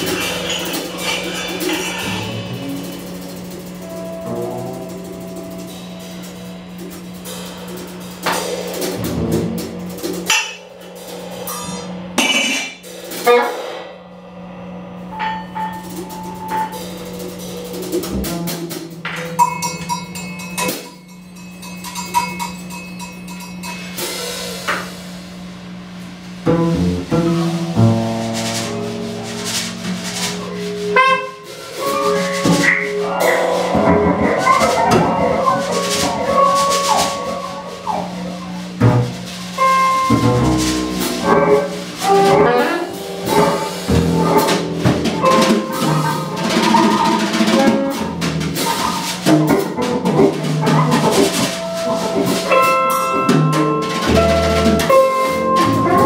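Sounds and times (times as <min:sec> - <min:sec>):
steady low drone: 0:00.0 - 0:12.2, 0:24.2 - 0:56.0
free-improvised ensemble music: 0:00.0 - 0:13.9, 0:15.6 - 0:19.3, 0:26.4 - 0:56.0
drum and cymbal hits: 0:00.0 - 0:56.0.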